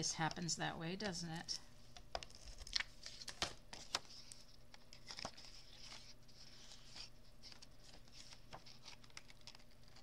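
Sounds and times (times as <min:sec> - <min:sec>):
paper rustling: 0:02.2 - 0:10.0.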